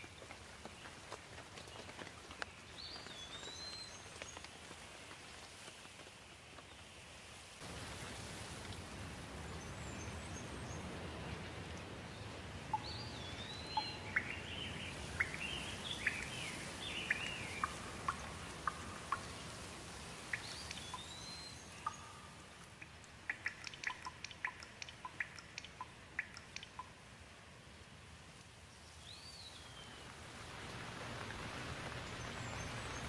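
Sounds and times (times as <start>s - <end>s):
water dripping: 7.6s - 27.3s
birds calling: 12.2s - 26.9s.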